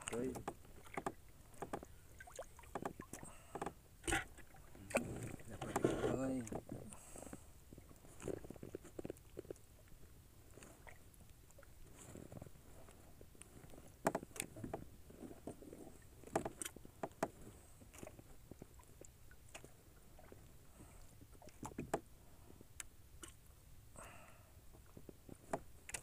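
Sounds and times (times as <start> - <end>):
clicks and knocks on wooden boat: 0.0 - 6.9, 13.8 - 15.6, 16.2 - 18.2, 21.5 - 22.1, 24.9 - 26.0.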